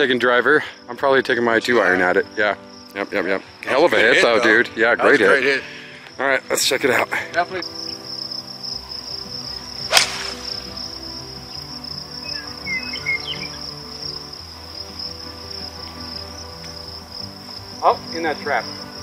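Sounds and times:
crickets trilling: 0:00.0 - 0:19.0
golf club striking ball: 0:09.8 - 0:10.8.

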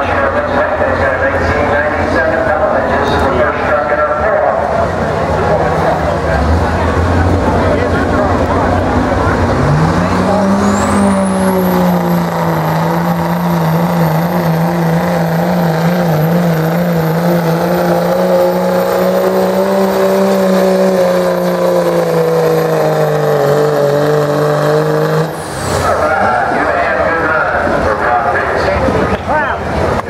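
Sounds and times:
diesel engine at full throttle: 0:00.0 - 0:30.0
turbocharger whistle: 0:10.2 - 0:26.0.

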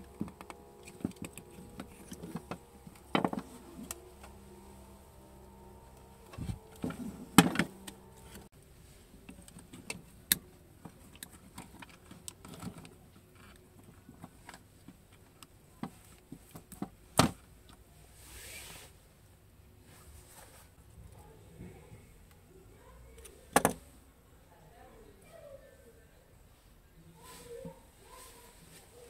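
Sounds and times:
metal and plastic clicks and knocks: 0:00.0 - 0:04.0.

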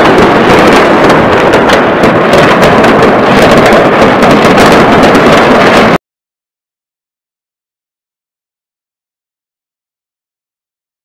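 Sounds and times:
fireworks bangs and booms: 0:00.0 - 0:06.0.

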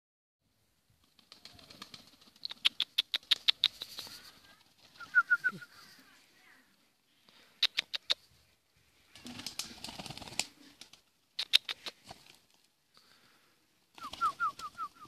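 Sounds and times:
pigeon wings clapping: 0:01.0 - 0:05.4, 0:09.2 - 0:12.6, 0:13.9 - 0:15.0.

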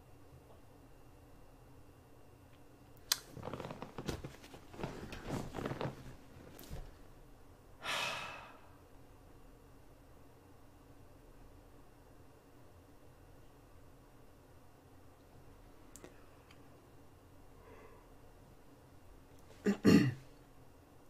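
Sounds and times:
rustling and shifting in a chair: 0:03.2 - 0:07.2
person sighing: 0:07.8 - 0:08.8.

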